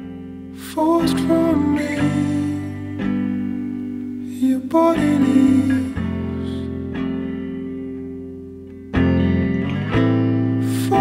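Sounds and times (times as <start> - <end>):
slow gentle guitar song: 0.0 - 11.0.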